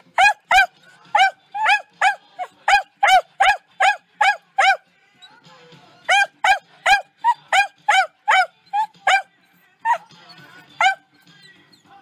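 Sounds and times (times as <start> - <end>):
dog barking: 0.0 - 4.8, 6.1 - 9.3, 9.9 - 11.1.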